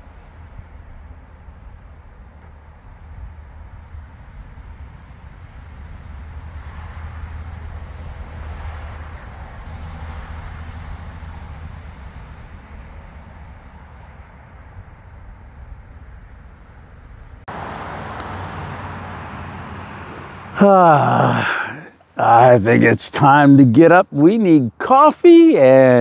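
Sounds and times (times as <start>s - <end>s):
traffic rumble: 17.0s - 26.0s
vehicle tyre hiss: 17.5s - 21.9s.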